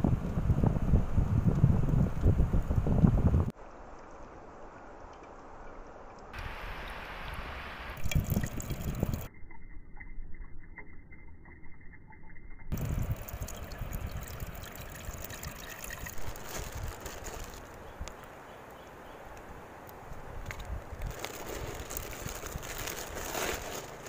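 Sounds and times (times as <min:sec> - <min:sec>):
liquid pouring into frying pan: 0:08.0 - 0:09.3, 0:12.7 - 0:16.4.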